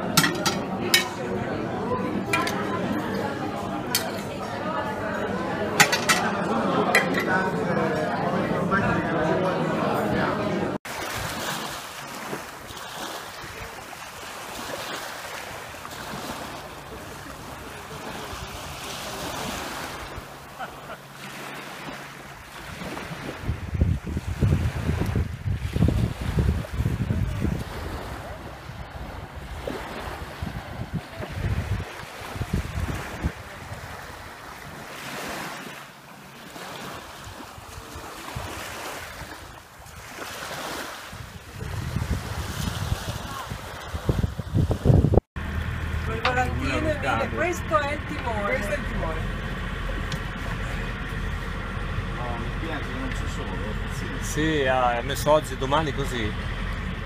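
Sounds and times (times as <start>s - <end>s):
small waves lapping: 0.0s - 57.0s
wind buffeting microphone: 22.6s - 34.9s, 40.9s - 57.0s.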